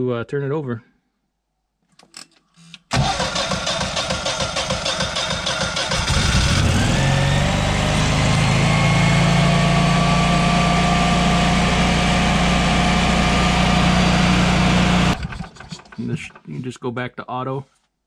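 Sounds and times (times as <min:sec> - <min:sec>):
electric starter cranking: 0:02.8 - 0:10.6, 0:11.2 - 0:16.5
generator engine running: 0:03.0 - 0:16.4.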